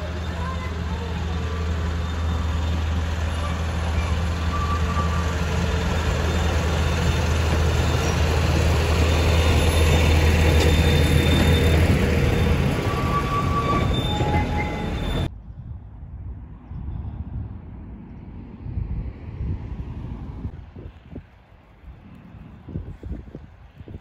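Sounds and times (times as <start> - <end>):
carriages rumbling over rails: 0.0 - 15.3
diesel locomotive engine hum: 0.0 - 24.0.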